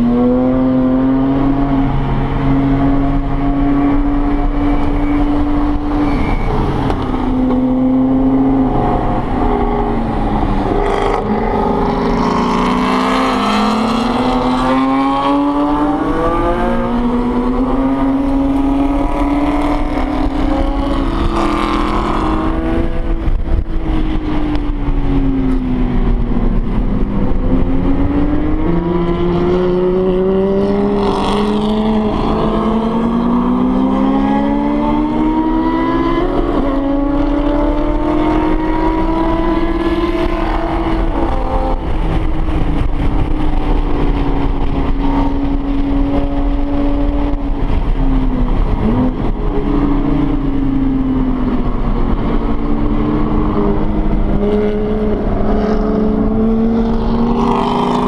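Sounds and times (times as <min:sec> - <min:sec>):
car engine revving: 0:00.0 - 0:58.0.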